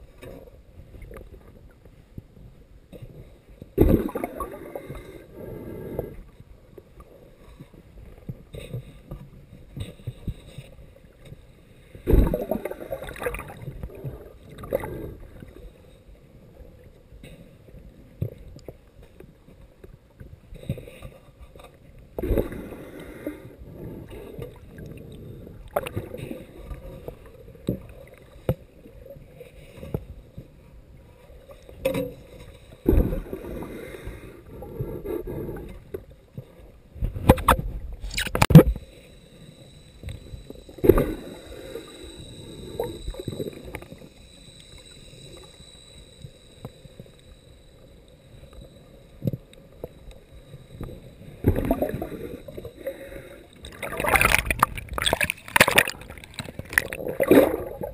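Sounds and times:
underwater sloshing surge: 3.8s - 5.2s, 12.0s - 15.4s, 50.8s - 57.9s
underwater knocks and thumps: 12.1s - 14.8s, 37.0s - 38.8s, 53.7s - 57.9s
faint high whine: 37.4s - 57.9s.

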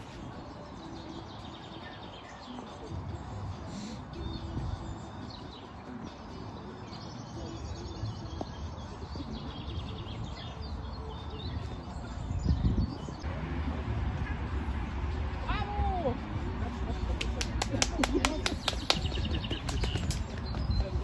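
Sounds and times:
songbirds chirping and singing: 0.0s - 13.3s, 18.0s - 21.0s.

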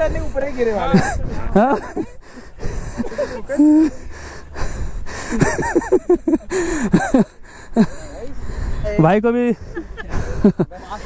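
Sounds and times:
wind rumbling on microphone: 3.9s - 6.3s.

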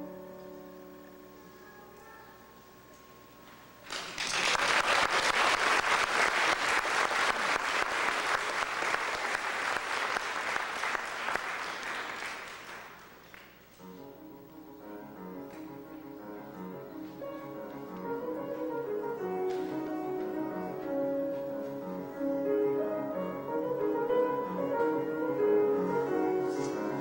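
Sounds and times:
grand piano notes: 0.0s - 3.8s, 11.5s - 27.0s
audience applauding: 3.8s - 13.6s.

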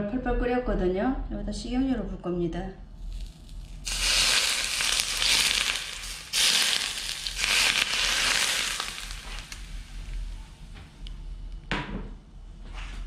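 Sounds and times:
hot oil sizzling: 3.0s - 10.7s.

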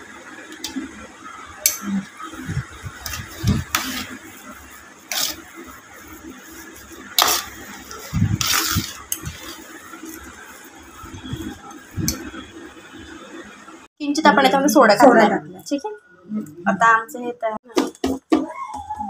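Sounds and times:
spoon scraping a steel bowl: 3.0s - 4.2s, 5.1s - 5.6s, 6.5s - 10.3s.

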